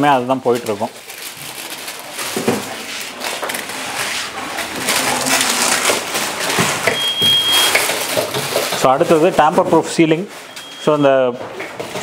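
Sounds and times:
rustling and handling noise: 0:00.0 - 0:12.0
high steady beep: 0:06.9 - 0:07.8, 0:10.5 - 0:11.0.

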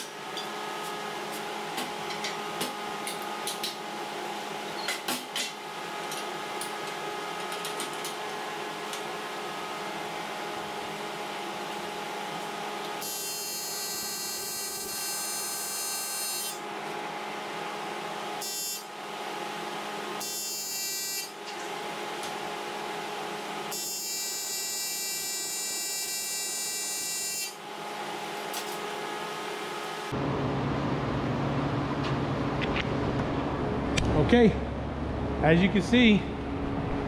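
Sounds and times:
welding machine humming: 0:12.8 - 0:16.9, 0:18.4 - 0:19.0, 0:20.1 - 0:21.7, 0:23.6 - 0:30.7
welding arc buzzing: 0:13.0 - 0:16.6, 0:18.4 - 0:18.9, 0:20.2 - 0:21.4, 0:23.7 - 0:27.6.

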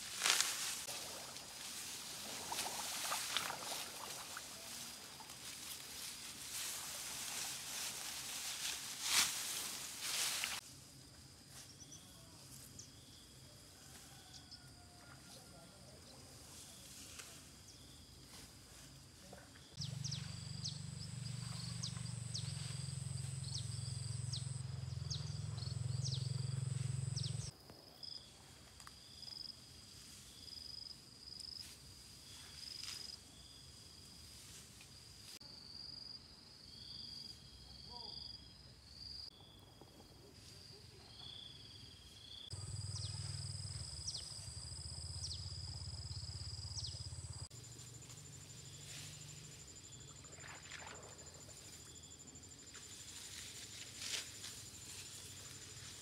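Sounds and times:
high insect drone: 0:16.6 - 0:28.3, 0:40.4 - 0:56.0.

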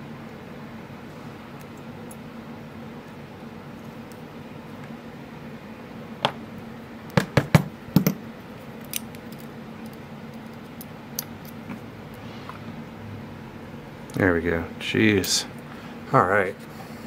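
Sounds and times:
padlock parts clicking: 0:08.8 - 0:11.6.

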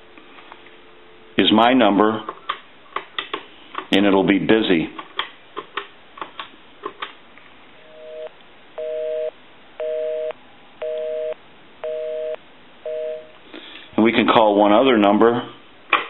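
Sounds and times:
telephone busy signal: 0:07.9 - 0:13.3.

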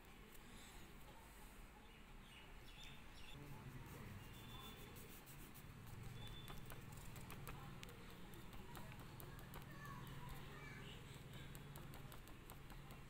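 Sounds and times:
faint room hum: 0:00.0 - 0:13.0
faint high chirps: 0:04.2 - 0:04.9, 0:06.0 - 0:06.9.

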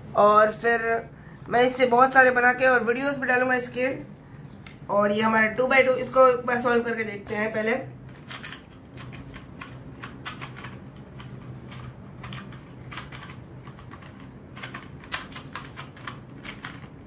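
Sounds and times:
puzzle cube clicking: 0:08.1 - 0:16.9.

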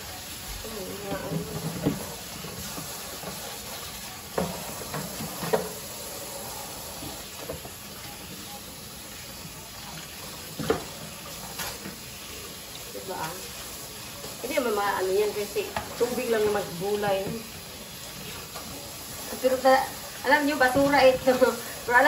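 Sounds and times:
sponge scrubbing plastic container: 0:00.7 - 0:05.8.

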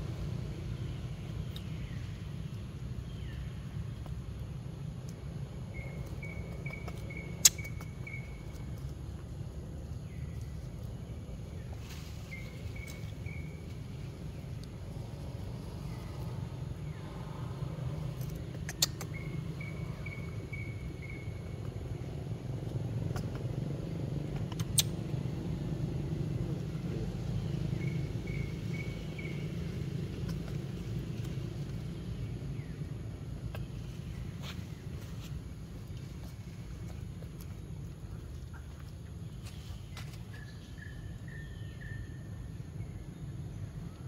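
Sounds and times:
steady low rumble: 0:00.0 - 0:44.0
sharp clicks: 0:18.2 - 0:19.2.

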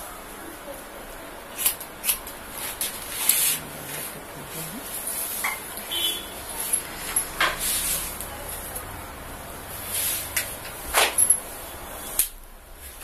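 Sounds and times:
hair rustling while combed: 0:06.5 - 0:08.7.

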